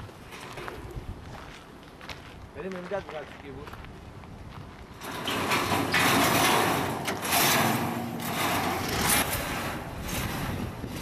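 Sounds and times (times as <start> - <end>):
metal frame scraping over gravel: 0.2 - 1.1, 4.9 - 11.0.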